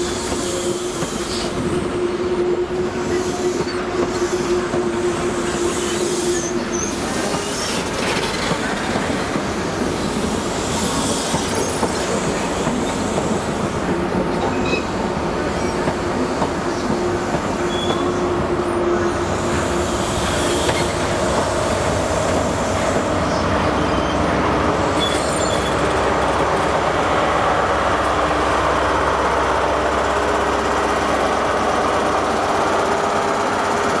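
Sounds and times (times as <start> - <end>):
train engine drone: 0.0 - 34.0.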